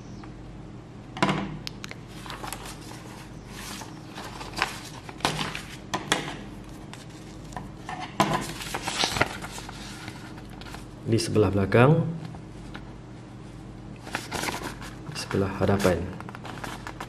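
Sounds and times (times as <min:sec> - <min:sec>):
paper rustling: 0:02.1 - 0:05.8, 0:08.3 - 0:10.9, 0:14.0 - 0:17.0.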